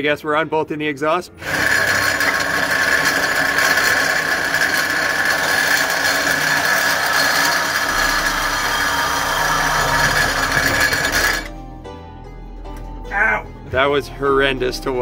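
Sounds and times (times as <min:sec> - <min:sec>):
power tool whining: 0:01.4 - 0:11.6.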